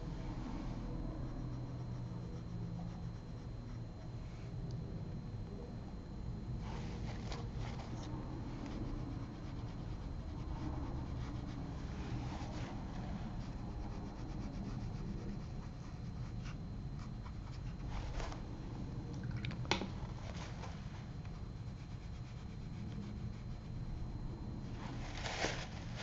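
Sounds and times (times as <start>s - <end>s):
steady low hum: 0.0s - 26.0s
brush rubbing on paper: 6.6s - 18.6s, 20.4s - 24.1s.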